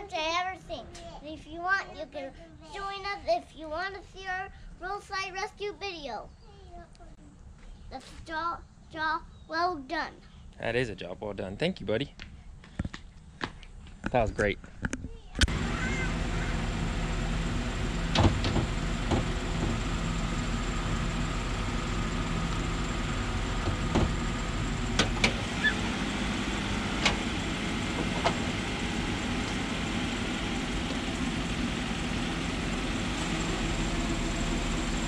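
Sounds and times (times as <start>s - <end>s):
car hood clunking up: 23.6s - 24.3s.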